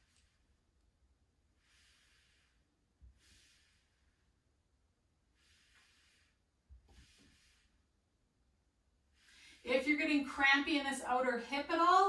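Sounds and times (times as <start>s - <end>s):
person breathing faintly: 1.5s - 4.5s, 5.2s - 8.0s, 9.0s - 9.8s.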